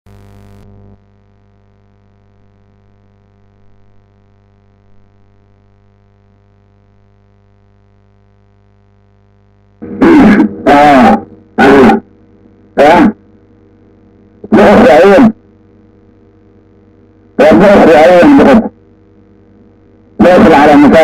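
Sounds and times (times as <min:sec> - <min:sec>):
electrical mains hum: 0:00.1 - 0:21.0
loud distorted vocal call: 0:09.8 - 0:12.1.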